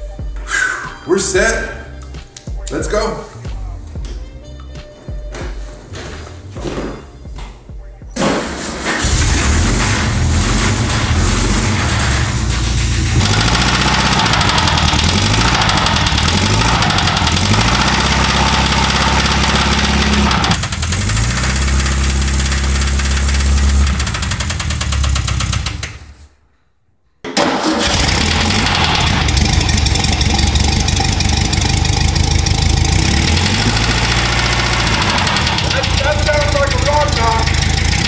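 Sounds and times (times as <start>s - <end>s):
engine revving: 8.8s - 26.2s, 27.4s - 38.0s
engine knocking: 9.0s - 26.1s, 27.8s - 38.0s.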